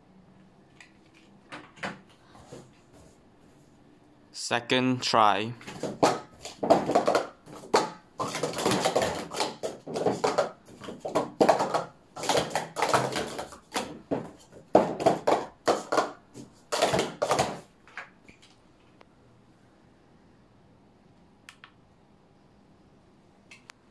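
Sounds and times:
plastic cups clattering: 5.6 - 18.5.

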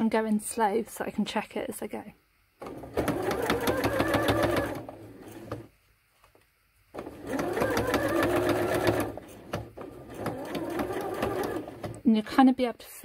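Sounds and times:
electric sewing machine stitching: 2.6 - 5.7, 7.0 - 12.0.

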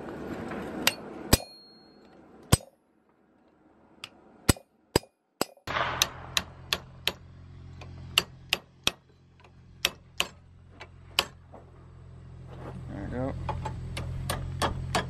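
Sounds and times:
hammer striking steel on anvil: 0.8 - 2.8, 4.0 - 9.1, 9.8 - 10.4.

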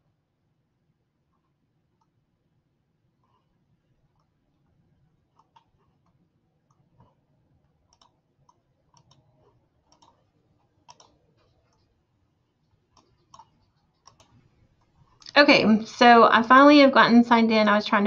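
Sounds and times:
computer keyboard clicks: 7.9 - 9.3, 9.9 - 10.2, 10.8 - 11.9, 12.9 - 14.4.

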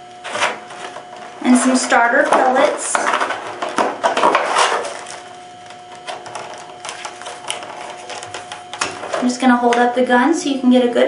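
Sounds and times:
plastic packaging crackling: 2.2 - 9.3.

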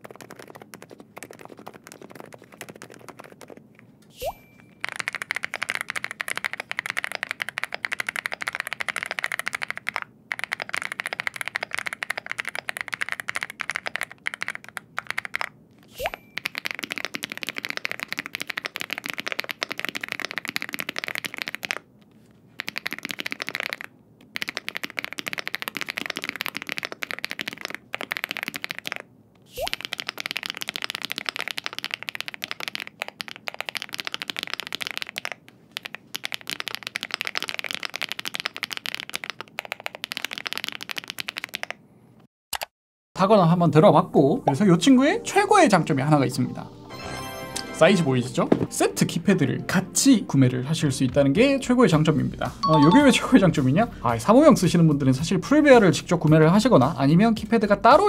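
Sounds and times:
fast mechanical keyboard typing: 0.0 - 3.7, 4.8 - 41.8.

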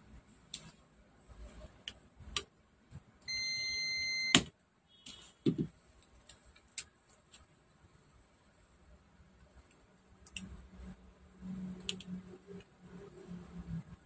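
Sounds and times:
multimeter high beep: 3.3 - 4.4.

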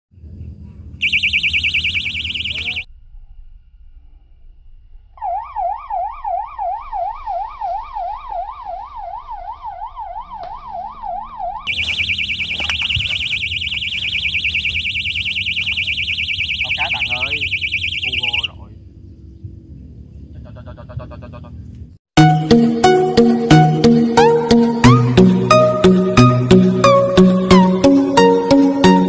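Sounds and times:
high fast alarm warble: 1.0 - 2.9, 5.2 - 18.6
lower sweeping alarm tone: 1.0 - 2.9, 5.2 - 18.6.

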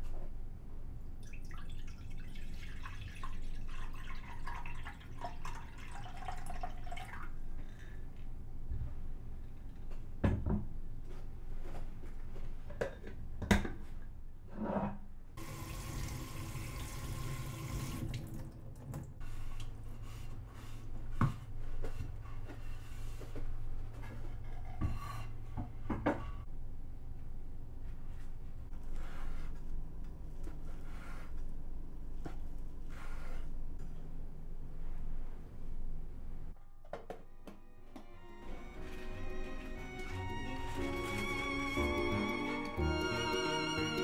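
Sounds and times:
liquid pouring into saucepan: 1.2 - 7.4.

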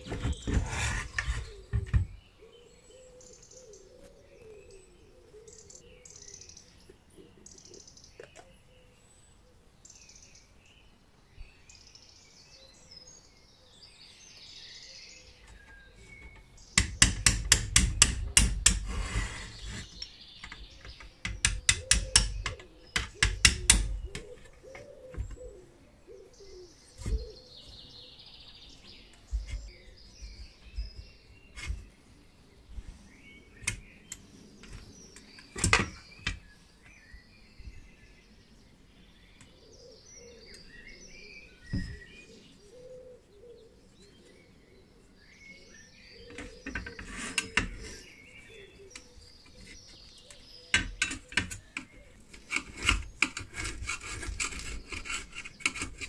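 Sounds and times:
faint bird chirping: 0.0 - 18.3, 18.9 - 56.0
hand tools clicking on metal: 20.4 - 24.4.

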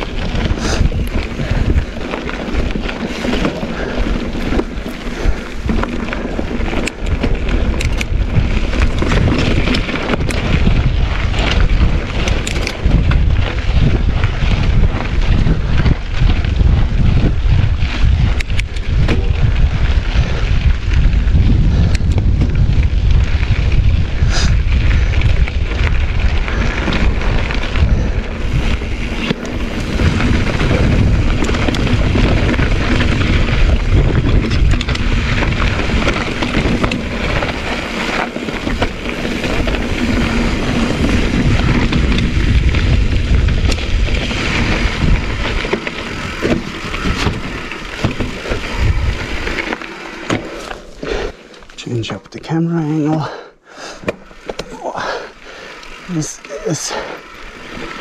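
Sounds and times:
wind rumble on microphone: 0.0 - 51.4
bike clicking and rattling: 0.0 - 58.0
tyres crunching over stones: 24.8 - 52.3, 54.0 - 58.0.

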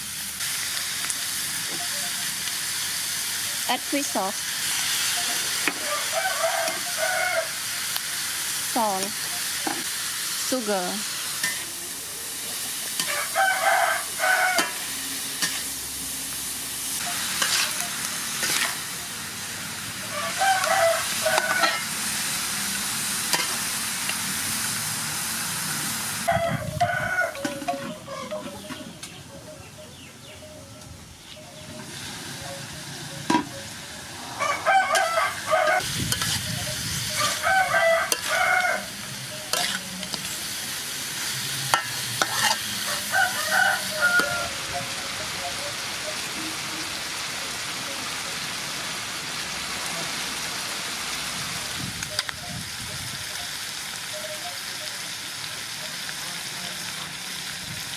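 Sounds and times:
food sizzling in a wok: 0.0 - 29.1, 31.2 - 57.9
rooster crowing: 5.6 - 7.9, 13.0 - 15.2, 20.0 - 21.9, 26.2 - 28.6, 34.2 - 35.9, 37.1 - 39.8, 41.7 - 45.0
metal spatula stirring: 17.2 - 18.9, 36.1 - 38.6, 39.5 - 40.4, 41.7 - 43.1.

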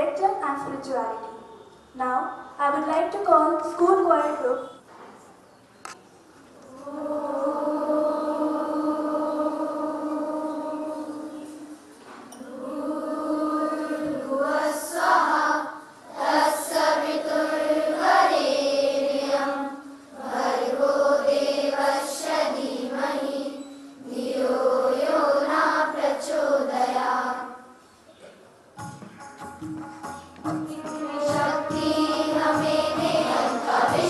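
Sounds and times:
children singing in unison: 6.6 - 27.8, 30.6 - 34.0.

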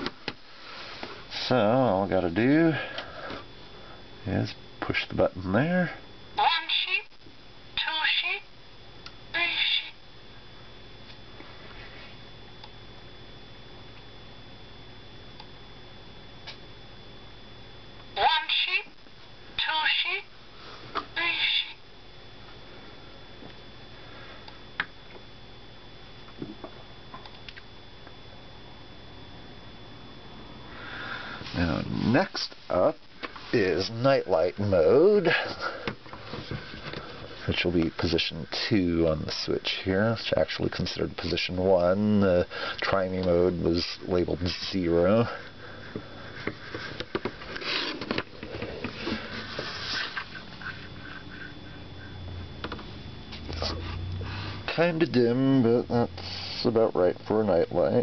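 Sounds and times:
faint high whine: 0.0 - 58.0
steady low hiss: 28.5 - 58.0.

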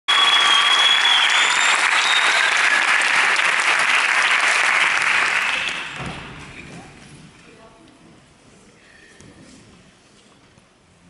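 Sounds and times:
high whistle: 0.1 - 3.0, 5.4 - 6.0
audience applauding: 0.1 - 6.3.

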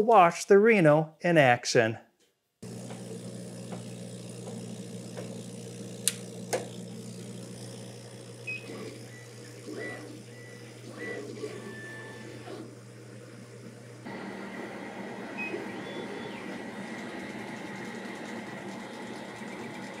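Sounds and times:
exhaust fan hum: 2.6 - 20.0
laser head whirring: 2.6 - 20.0
sharp clicks: 6.0 - 6.7.

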